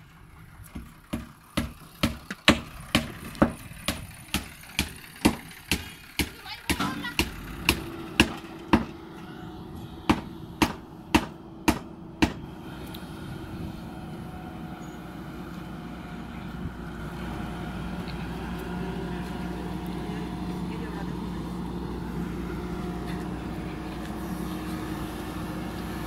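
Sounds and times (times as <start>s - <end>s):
diesel engine running: 0.0s - 26.0s
sharp knocks: 10.1s - 12.4s.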